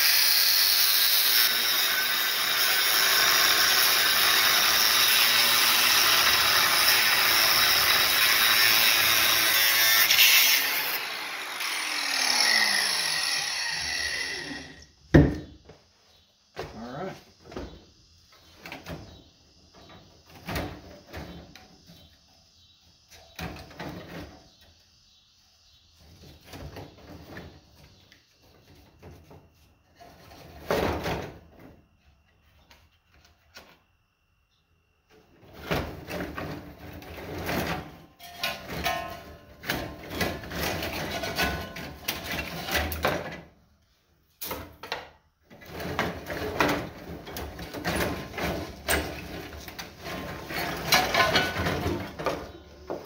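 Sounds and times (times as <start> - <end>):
copper bars clinking and scraping: 38.2 - 39.4, 50.0 - 52.2.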